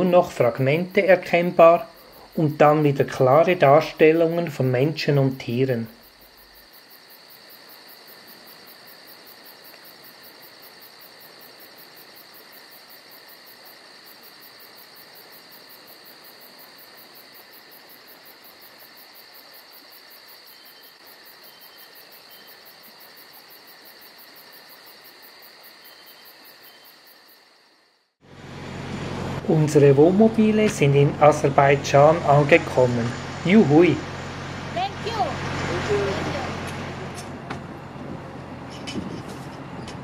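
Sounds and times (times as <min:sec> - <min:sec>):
insects chirring: 0:00.0 - 0:28.2.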